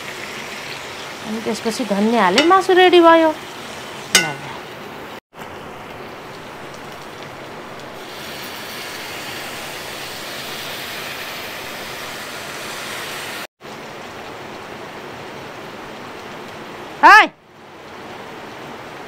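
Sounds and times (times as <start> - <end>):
food sizzling in pan: 0.0 - 4.7, 5.4 - 13.5
water pouring into hot pan: 5.7 - 13.5.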